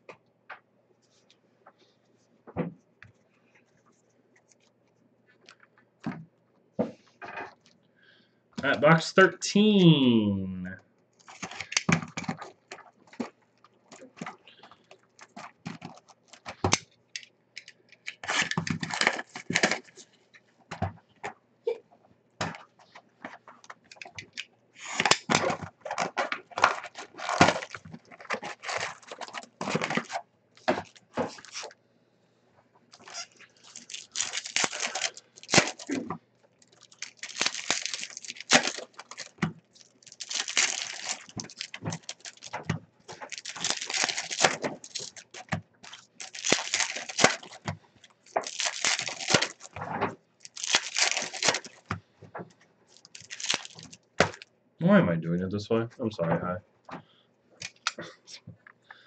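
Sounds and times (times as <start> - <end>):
card wrappers tearing and crinkling: 11.2 - 13.3, 13.9 - 16.9, 18.0 - 20.0, 23.9 - 31.7, 32.9 - 51.9, 52.9 - 54.4, 57.6 - 58.0
cards rustling and shuffling: 11.2 - 20.1, 22.4 - 31.7, 32.9 - 54.4.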